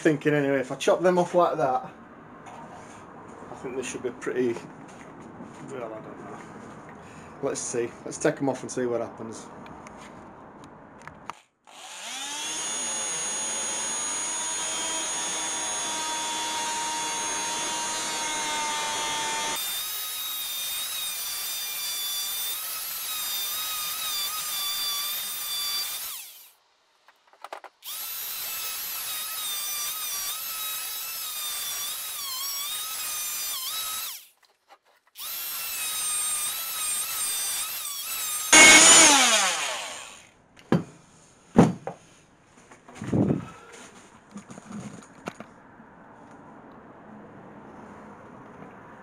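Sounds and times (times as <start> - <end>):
oscillating multi-tool cutting wood: 11.7 - 26.6, 27.8 - 40.3.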